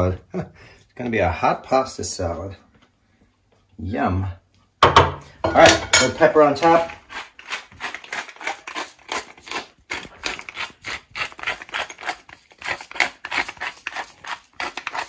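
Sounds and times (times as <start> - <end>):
pepper mill grinding: 6.4 - 15.0.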